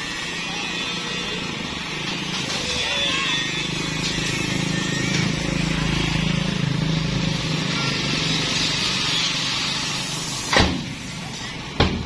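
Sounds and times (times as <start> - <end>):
diesel truck engine running: 0.0 - 12.0
hydraulic hiss: 8.1 - 11.8.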